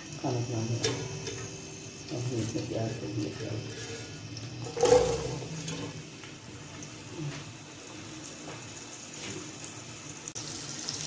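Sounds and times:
onions sizzling in oil: 0:00.0 - 0:11.0
metal ladle scraping: 0:03.7 - 0:05.9.

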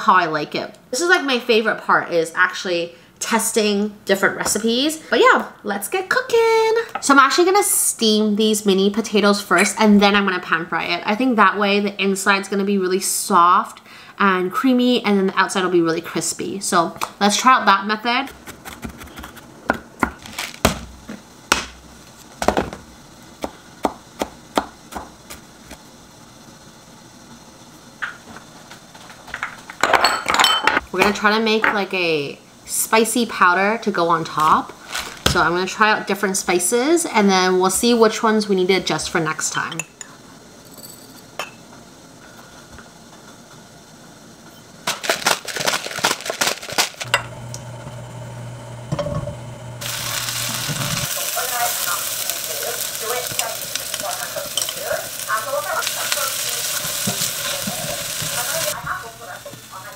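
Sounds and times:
steady low hum: 0:47.0 - 0:59.9.

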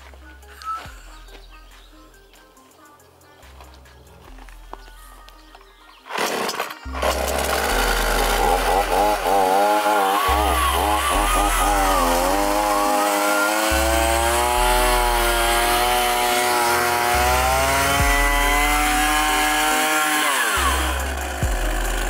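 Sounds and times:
chainsaw running: 0:06.1 - 0:22.0.

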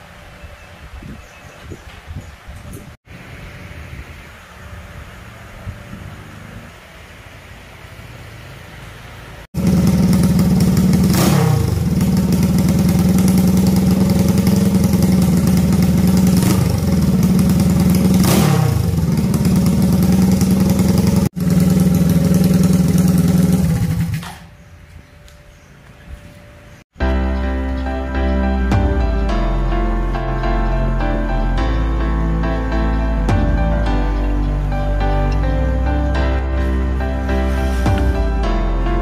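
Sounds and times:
motorcycle engine revving: 0:05.8 - 0:06.8, 0:09.6 - 0:24.6, 0:37.2 - 0:38.8.

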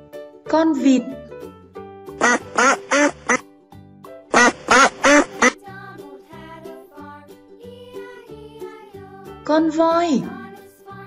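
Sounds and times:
light background music: 0:00.0 - 0:11.0
duck quacking: 0:02.2 - 0:03.4, 0:04.3 - 0:05.6.

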